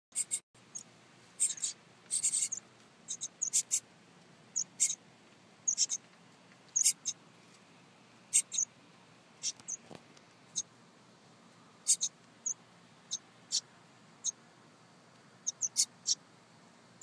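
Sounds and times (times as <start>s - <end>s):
nestling birds peeping: 0.1s - 3.9s, 4.5s - 7.4s, 8.1s - 10.8s, 11.5s - 14.5s, 15.4s - 16.3s.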